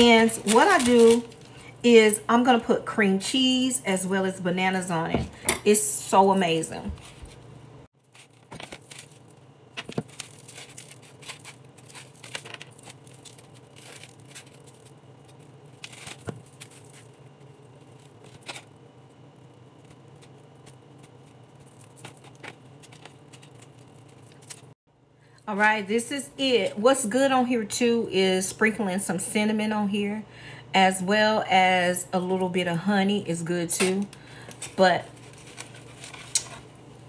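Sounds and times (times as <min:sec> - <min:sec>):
faint steady hum: 0:00.0 - 0:37.0.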